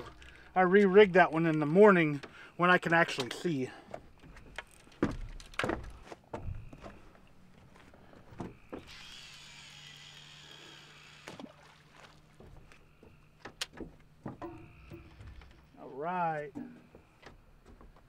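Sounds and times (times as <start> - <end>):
fishing reel spool whirring: 8.7 - 12.2.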